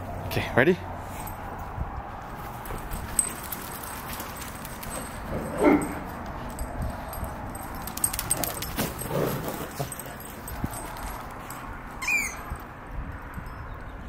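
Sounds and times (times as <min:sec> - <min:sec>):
dog collar tags jingling: 0:02.3 - 0:14.0.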